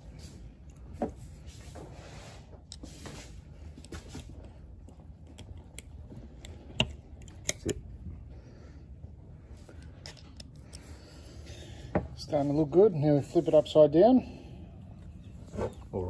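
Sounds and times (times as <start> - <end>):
screwdriver scraping metal spring: 5.3 - 7.8
sharp metallic clicks: 5.3 - 7.8.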